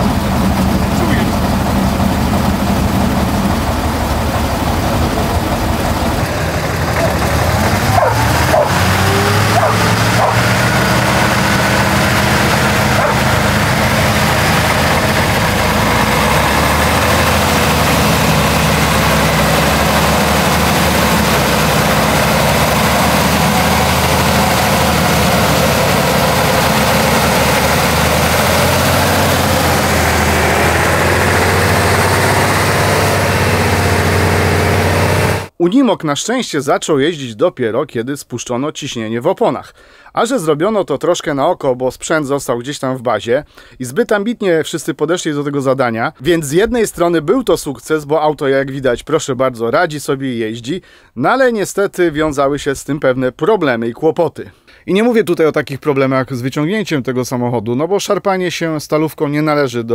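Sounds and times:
truck engine droning: 0.0 - 35.6.

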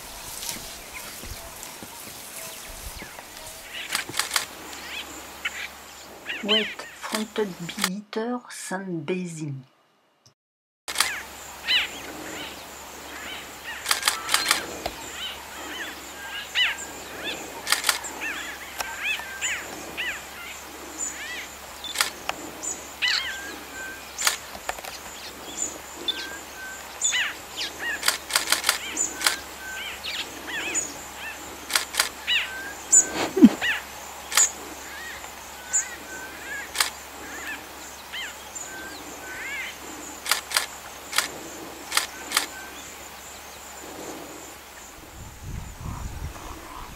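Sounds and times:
wing flutters: 0.0 - 7.9, 10.9 - 43.0
birds chirping: 0.0 - 8.0, 10.9 - 46.9
sharp clicks: 3.9 - 4.8, 10.9 - 11.2, 13.8 - 15.0, 17.7 - 18.0, 21.9 - 22.4, 24.2 - 25.1, 28.0 - 29.4, 31.7 - 32.2, 34.3 - 34.6, 36.8 - 37.0, 40.2 - 42.5.

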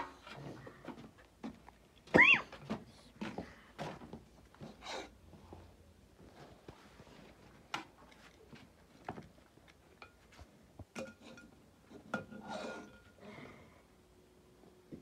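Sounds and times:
dishes and utensils clinking: 11.0 - 13.2.

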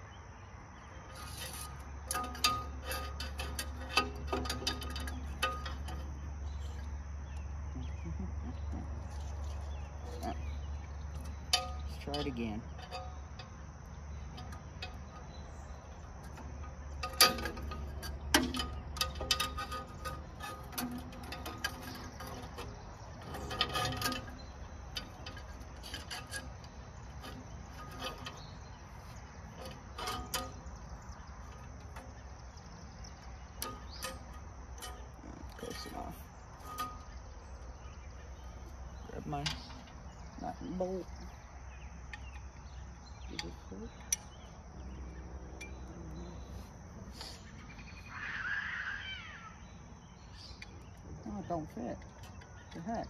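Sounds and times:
metal clinks knocks and scrapes: 1.0 - 7.7, 8.8 - 48.0, 50.2 - 53.0.

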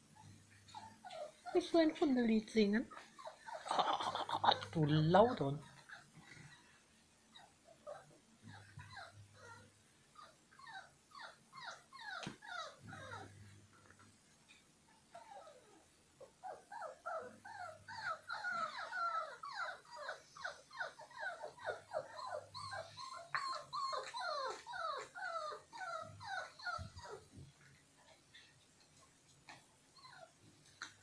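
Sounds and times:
puppy whimpering: 0.7 - 1.8, 2.9 - 6.7, 7.3 - 13.5, 15.1 - 27.5, 29.9 - 31.0.

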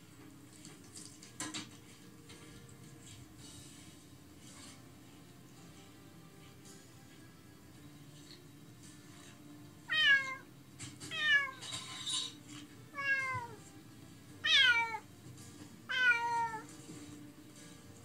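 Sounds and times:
cat meowing: 9.9 - 10.4, 11.1 - 13.6, 14.4 - 15.1, 15.9 - 16.7.

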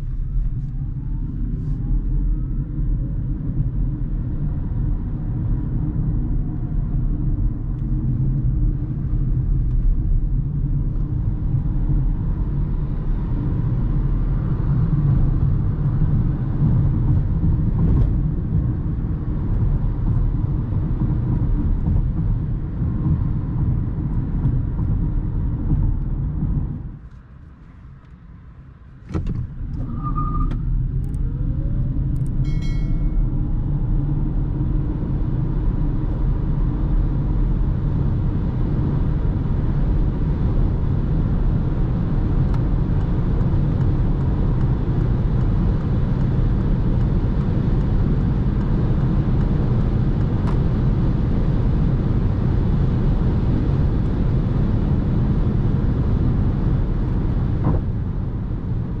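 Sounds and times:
road and wind noise: 0.0 - 59.0
short electronic beeps: 32.5 - 33.3.

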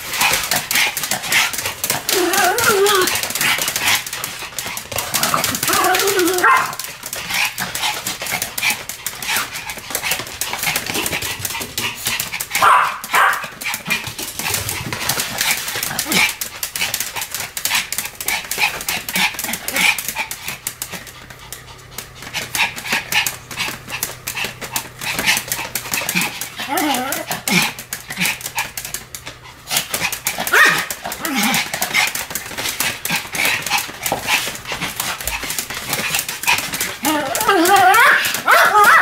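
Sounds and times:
dog claws scrabbling: 0.0 - 39.0
dog panting: 0.0 - 39.0
dog barking: 12.6 - 13.5, 30.5 - 30.9, 38.0 - 39.0
dog yipping: 30.5 - 30.9.

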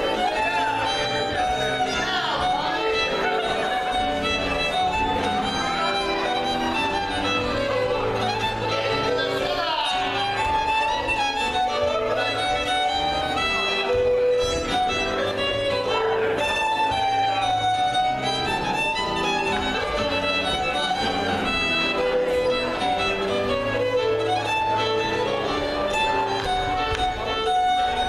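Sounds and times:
fiddle dance tune: 0.0 - 28.0
keyboard accompaniment: 0.0 - 28.0.

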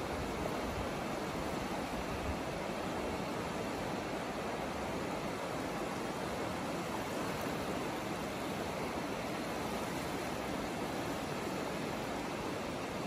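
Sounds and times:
small waves washing over sand: 0.0 - 13.0.

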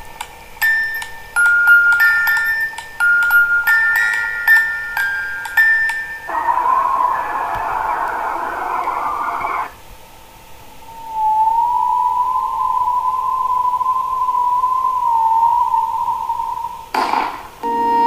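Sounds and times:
high wavering tone: 0.0 - 9.7
harsh narrow-band hiss: 0.0 - 18.0
eerie background music: 1.1 - 9.7.

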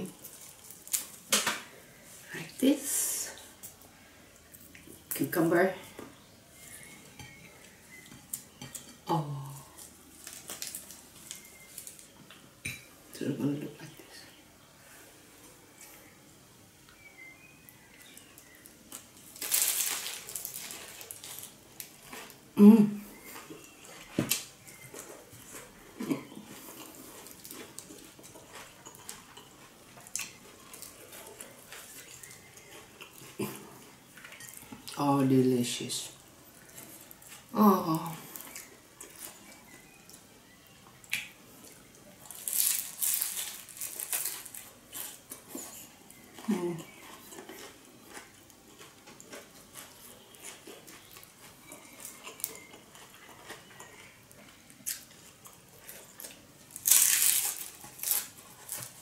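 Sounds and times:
lettuce leaves crackling: 0.0 - 1.6, 8.3 - 12.2, 18.1 - 22.4, 42.2 - 45.4, 46.1 - 59.0
close chewing: 23.1 - 35.0, 36.1 - 59.0.

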